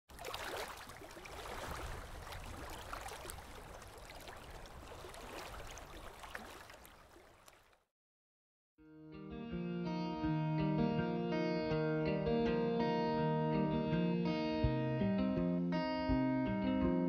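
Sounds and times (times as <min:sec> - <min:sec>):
running splashing water: 0:00.1 - 0:07.8.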